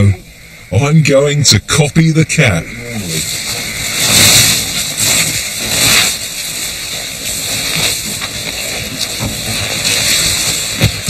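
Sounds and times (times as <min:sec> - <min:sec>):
snowshoes sliding on snow hissing: 0:02.8 - 0:11.0
soft scuffs in snow: 0:03.2 - 0:11.0.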